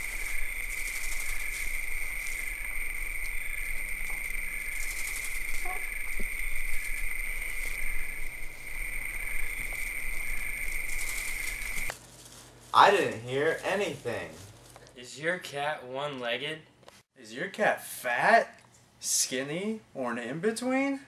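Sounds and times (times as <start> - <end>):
high-pitched electrical whine: 0.0 - 11.9
low hum: 0.0 - 11.9.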